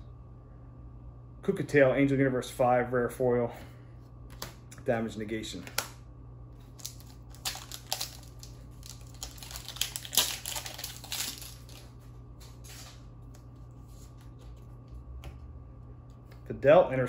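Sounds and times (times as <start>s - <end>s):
foil wrapper tearing and crinkling: 6.6s - 13.0s
cards rustling: 6.6s - 15.0s.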